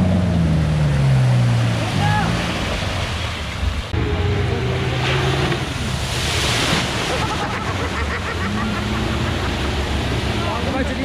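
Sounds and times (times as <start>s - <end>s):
engine running under load: 0.0s - 11.0s
water splashing: 0.8s - 11.0s.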